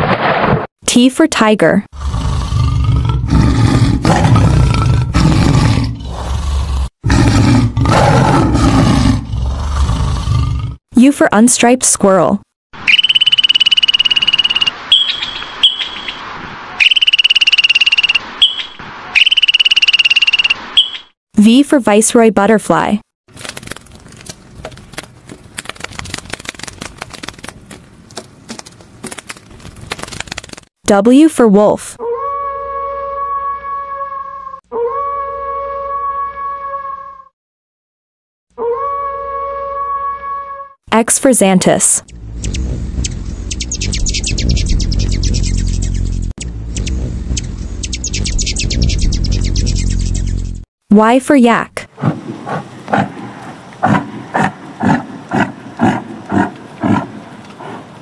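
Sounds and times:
tiger roaring: 1.9s - 10.8s, 52.1s - 58.0s
papery wing flaps and clicks: 23.3s - 30.7s.

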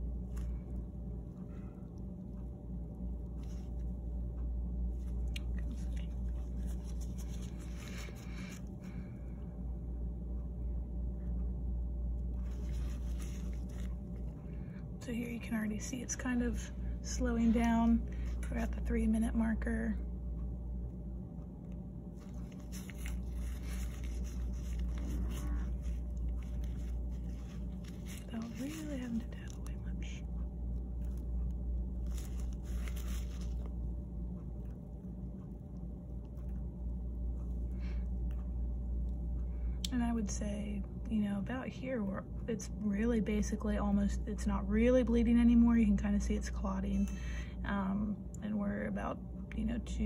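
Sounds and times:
soft rustles and scrapes: 0.0s - 0.8s, 3.3s - 9.0s, 12.2s - 19.8s, 22.0s - 35.1s
steady low hum: 0.0s - 50.0s.

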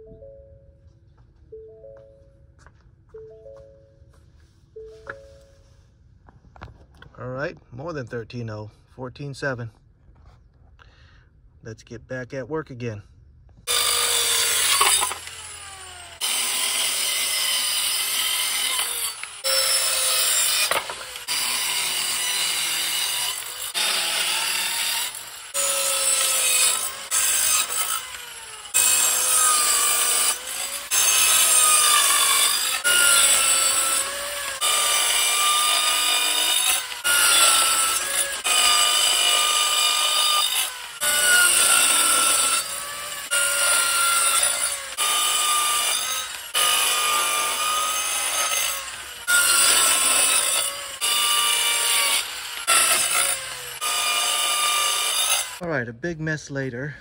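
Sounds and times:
circular saw cutting wood: 13.7s - 55.6s.

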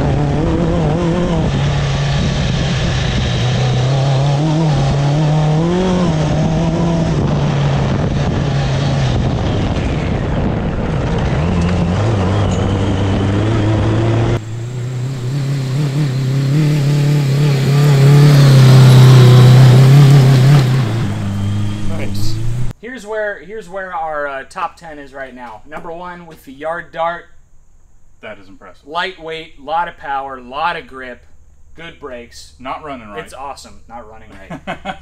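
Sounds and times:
kart engine revving: 0.0s - 22.7s.

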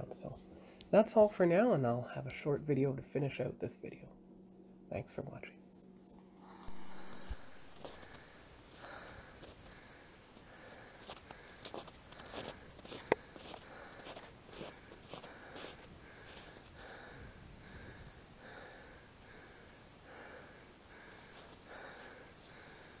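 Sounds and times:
soft footsteps on snowy trail: 10.8s - 16.6s.

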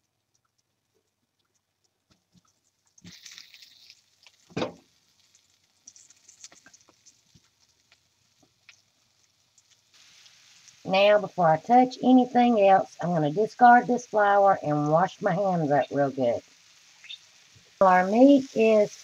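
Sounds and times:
patter and rustling in mesh strainer: 1.4s - 10.8s.

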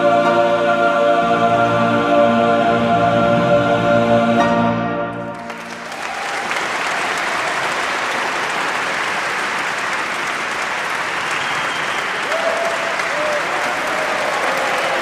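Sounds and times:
music: 0.0s - 6.1s
people clapping: 5.4s - 15.0s.

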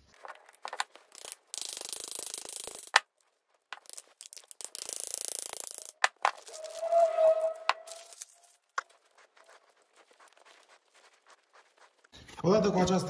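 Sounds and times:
fast rasping ratchet clicking: 0.2s - 3.1s, 3.7s - 6.3s.

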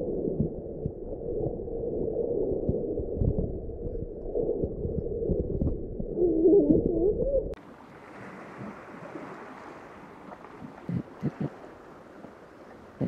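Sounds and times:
underwater sloshing: 0.0s - 13.0s
wind hiss over sea: 7.6s - 13.0s.

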